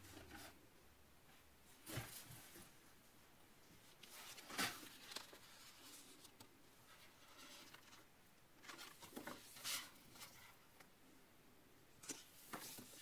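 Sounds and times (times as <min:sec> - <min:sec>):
book pages turning: 0:04.0 - 0:08.0, 0:08.6 - 0:10.5.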